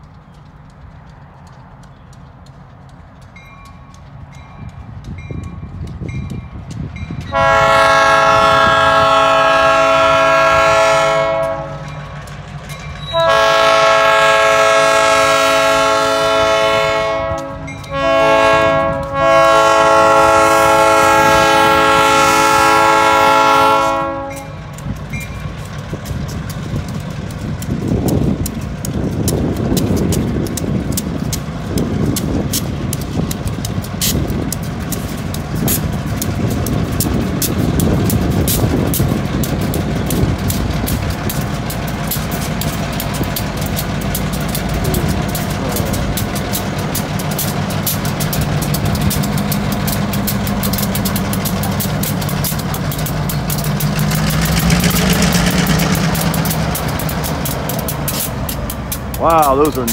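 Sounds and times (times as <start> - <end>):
rapid clicking of train: 0.0 - 59.9
train engines rumbling: 0.0 - 59.9
locomotive air horn blasts: 7.3 - 11.9, 13.0 - 24.7.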